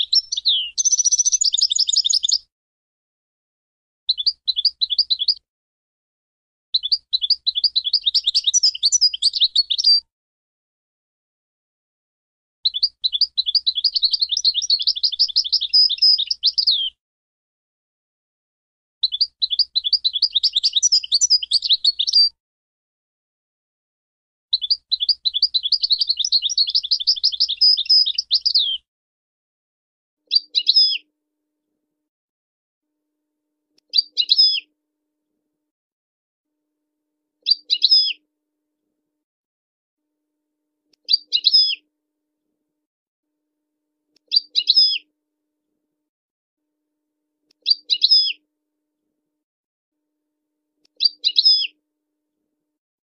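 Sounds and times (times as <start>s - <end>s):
goldfinch chirping: 0.0s - 2.4s, 4.1s - 5.4s, 6.8s - 10.0s, 12.7s - 16.9s, 19.0s - 22.3s, 24.6s - 28.8s, 30.3s - 31.0s, 33.9s - 34.6s, 37.4s - 38.2s, 41.0s - 41.8s, 44.3s - 45.0s, 47.6s - 48.4s, 51.0s - 51.7s
bird singing twittering phrase: 0.0s - 2.5s, 4.1s - 5.4s, 6.8s - 10.0s, 12.7s - 17.0s, 19.0s - 22.4s, 24.5s - 28.8s, 30.3s - 31.1s, 33.9s - 34.7s, 37.4s - 38.2s, 41.1s - 41.8s, 44.3s - 45.0s, 47.6s - 48.4s, 51.0s - 51.8s.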